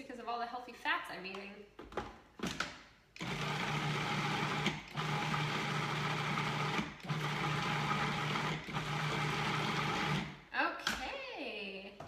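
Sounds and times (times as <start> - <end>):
food processor motor running: 3.2 - 10.4.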